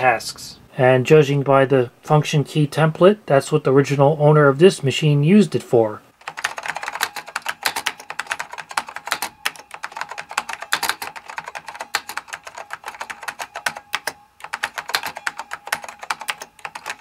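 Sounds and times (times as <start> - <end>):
mechanical keyboard typing: 6.2 - 17.0.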